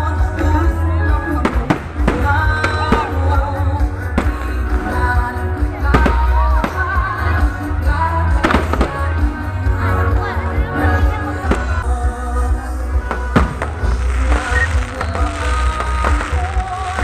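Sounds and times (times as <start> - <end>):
person singing: 0.0 - 17.0
music with heavy bass beat: 0.1 - 17.0
firework bangs: 1.4 - 7.0, 8.4 - 9.2, 13.1 - 17.0.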